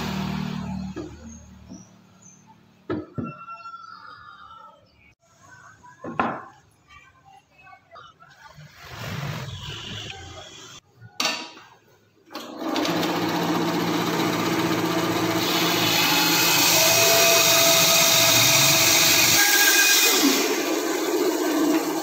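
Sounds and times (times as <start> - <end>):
bandsaw cutting wood: 12.8 - 22.0.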